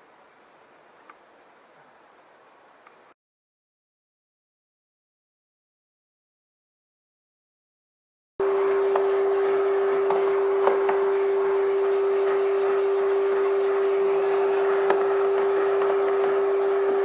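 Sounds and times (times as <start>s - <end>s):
vacuum cleaner humming: 8.4s - 17.0s.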